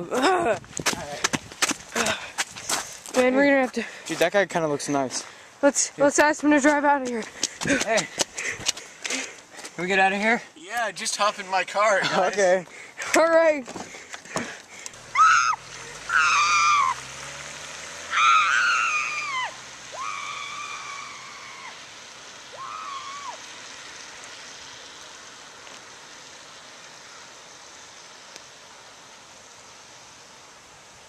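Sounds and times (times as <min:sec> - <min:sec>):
rain hiss: 0:00.0 - 0:31.0
car engine: 0:13.0 - 0:31.0.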